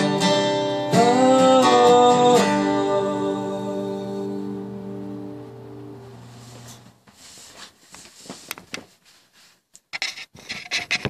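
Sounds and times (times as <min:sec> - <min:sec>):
acoustic guitar chord ringing: 0:00.0 - 0:06.7
rustling: 0:06.3 - 0:11.0.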